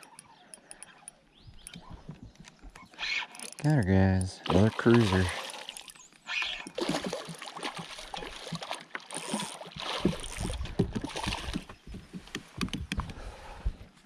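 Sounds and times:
fish splashing and thrashing: 0.0s - 12.6s
water sloshing: 1.7s - 12.1s.

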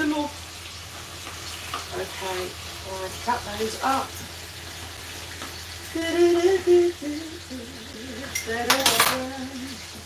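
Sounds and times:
chicken frying in pan: 0.0s - 10.0s
woman humming: 5.8s - 10.0s.

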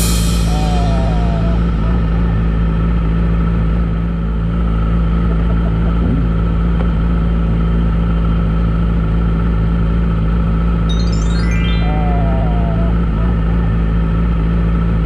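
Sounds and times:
motorcycle engine idling: 0.0s - 10.8s.

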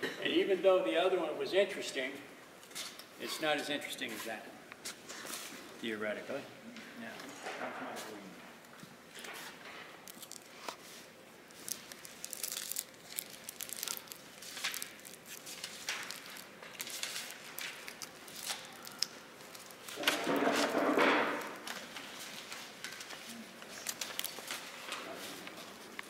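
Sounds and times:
paper rustling and crinkling: 9.1s - 26.0s.

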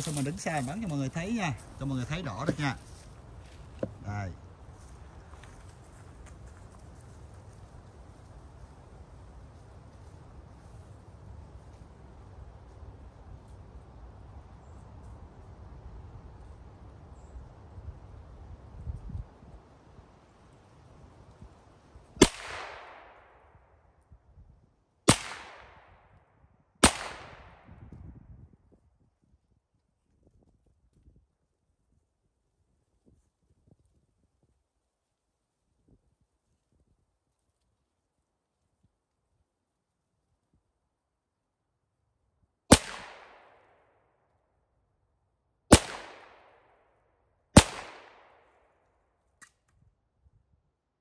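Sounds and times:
gunshots with echo: 22.2s - 23.3s, 25.1s - 26.0s, 26.8s - 27.7s, 42.7s - 43.6s, 45.7s - 46.6s, 47.6s - 48.6s.

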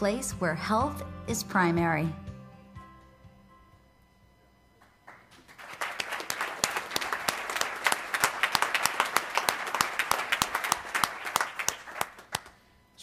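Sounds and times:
audience applauding: 4.8s - 12.6s.

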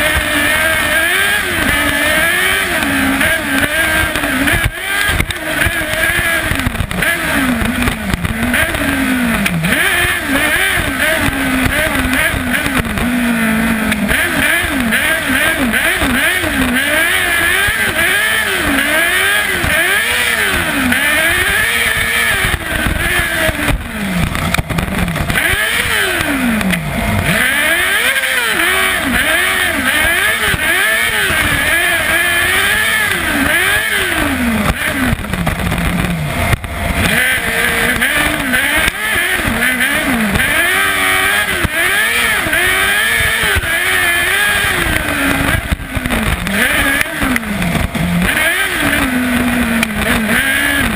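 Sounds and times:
motorcycle engine revving: 0.0s - 50.9s.

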